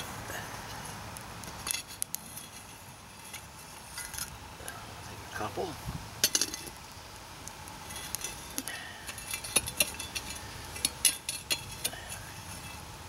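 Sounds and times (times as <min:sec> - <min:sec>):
charcoal clinking against metal: 0:06.2 - 0:06.8, 0:07.8 - 0:12.8.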